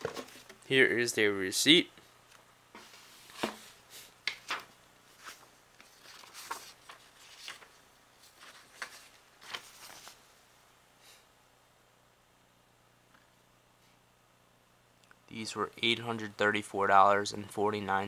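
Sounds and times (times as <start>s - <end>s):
cardboard and paper taps and rustles: 2.8s - 3.6s.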